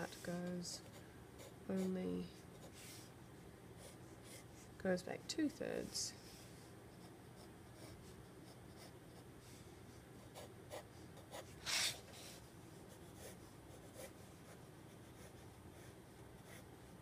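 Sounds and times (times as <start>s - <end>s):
pencil scratching on paper: 7.0s - 9.3s, 10.2s - 16.7s.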